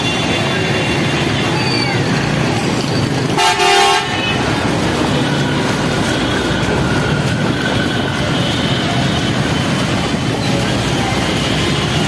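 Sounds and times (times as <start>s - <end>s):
traffic noise: 0.0s - 12.0s
vehicle horn honking: 3.4s - 4.4s.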